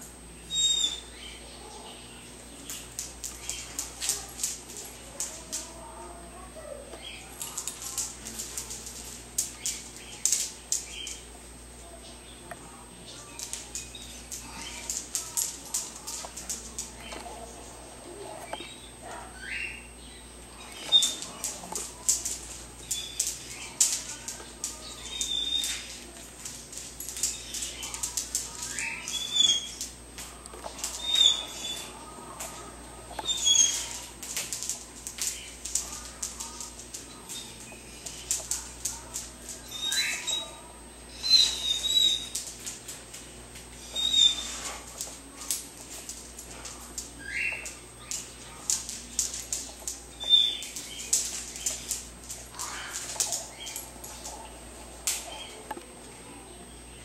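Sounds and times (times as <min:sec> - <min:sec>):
squirrel squeaking: 0:00.5 - 0:01.3, 0:27.3 - 0:29.9, 0:30.8 - 0:32.1, 0:33.1 - 0:34.1, 0:39.6 - 0:42.4, 0:43.8 - 0:44.6, 0:50.2 - 0:51.2.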